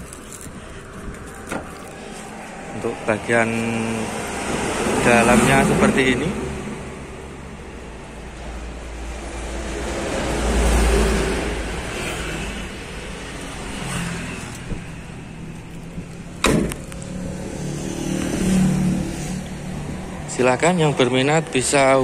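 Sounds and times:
vehicle passing: 0.3 - 22.0
sharp knock: 16.4 - 16.8.

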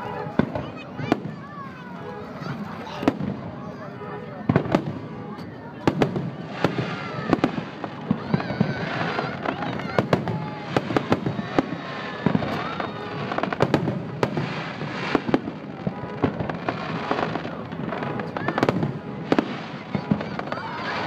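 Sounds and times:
fireworks bangs: 0.0 - 21.0
fireworks crackle: 0.0 - 21.0.

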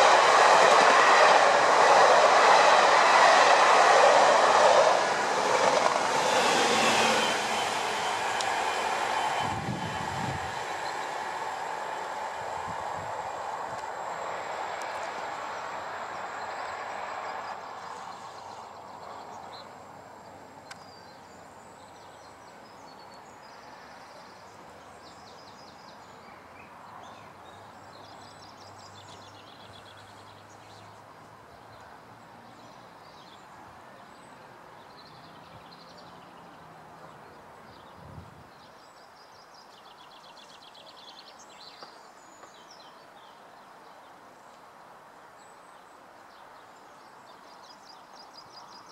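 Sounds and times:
train passing: 0.0 - 29.3
distant traffic hum: 0.0 - 37.7.

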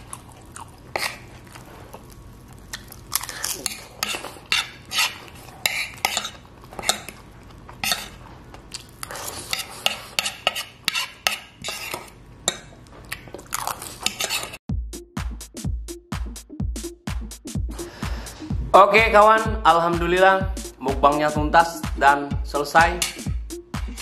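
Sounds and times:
spoon and fork scraping a plate: 0.9 - 1.3, 3.5 - 7.2, 7.8 - 8.2, 9.0 - 14.6, 23.0 - 23.3.

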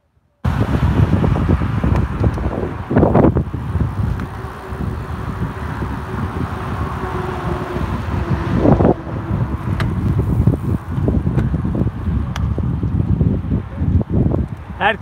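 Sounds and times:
minibus driving past: 0.4 - 11.2
wind buffeting microphone: 0.4 - 15.0.

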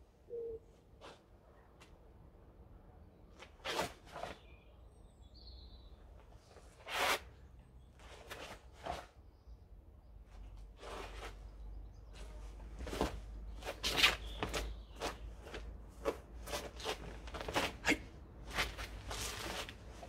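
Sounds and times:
karate uniform swishing and snapping: 3.6 - 4.4, 12.8 - 19.9.

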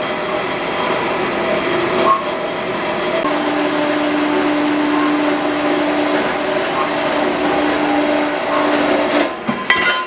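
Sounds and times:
bandsaw cutting steel: 3.2 - 9.4.

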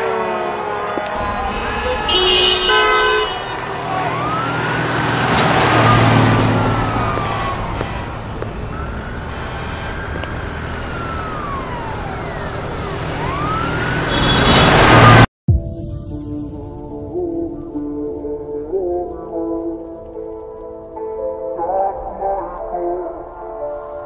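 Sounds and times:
city street traffic: 0.0 - 15.3
emergency siren wailing: 0.0 - 15.3.

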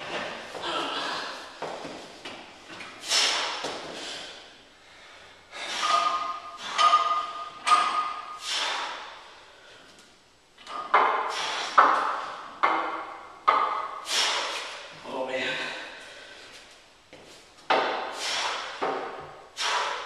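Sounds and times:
barbell plates clanking: 5.7 - 9.0.

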